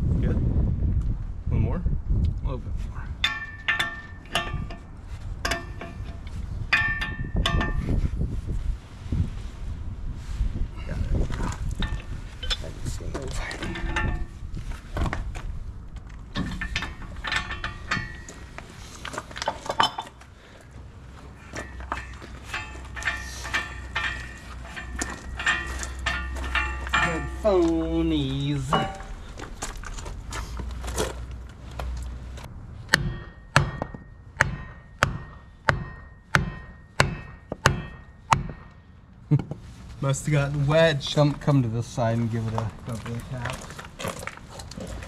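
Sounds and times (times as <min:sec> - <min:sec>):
wrench clinking on metal: 0:03.2 - 0:07.8, 0:13.6 - 0:14.3, 0:16.4 - 0:18.6, 0:19.4 - 0:20.2, 0:21.4 - 0:29.2
short metallic ring: 0:21.4 - 0:27.6, 0:28.6 - 0:29.2
hammer striking wooden block: 0:32.9 - 0:38.7.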